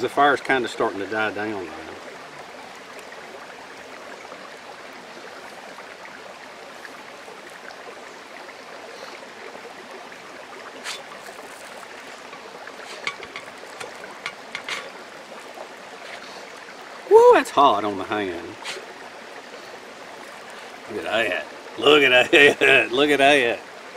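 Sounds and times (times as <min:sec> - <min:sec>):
creek water flowing: 0:00.0 - 0:23.9
spatula scraping griddle: 0:12.8 - 0:14.9.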